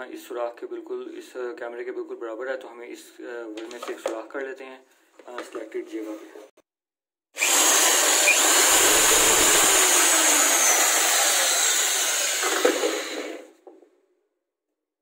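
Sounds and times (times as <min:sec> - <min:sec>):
electric drill boring through board: 0:07.4 - 0:13.6.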